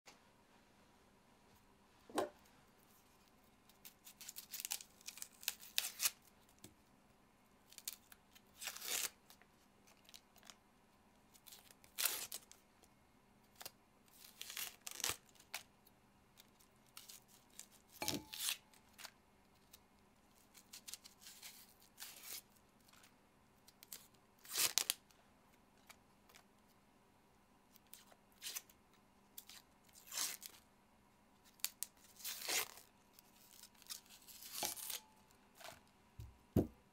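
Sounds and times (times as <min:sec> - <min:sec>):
onion skins crackling and tearing: 0:03.6 - 0:06.7, 0:07.7 - 0:10.6, 0:11.4 - 0:12.6, 0:13.5 - 0:15.7, 0:20.4 - 0:25.1, 0:31.4 - 0:35.9.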